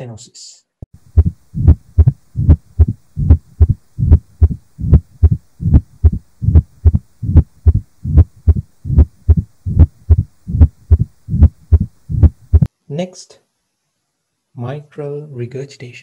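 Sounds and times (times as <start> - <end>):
heartbeat thumps with murmur: 1.0 - 12.7.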